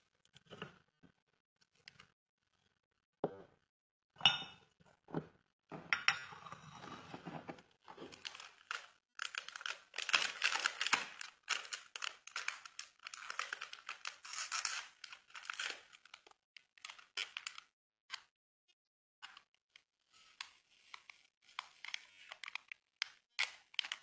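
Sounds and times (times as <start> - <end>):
cup clinking on saucer: 4.2 - 4.6
sachet crinkling and tearing: 8.1 - 17.6, 21.6 - 24.0.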